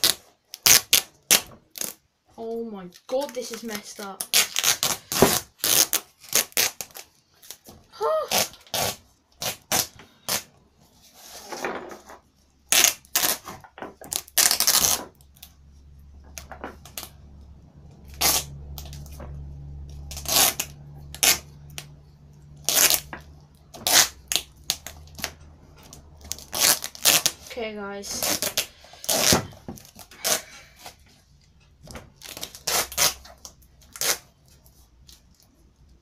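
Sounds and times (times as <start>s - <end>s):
duct tape ripping off roll: 0.0s - 2.1s, 3.3s - 10.5s, 12.6s - 15.6s, 16.4s - 17.2s, 18.0s - 31.1s, 32.1s - 35.5s
low steady hum: 14.0s - 36.0s.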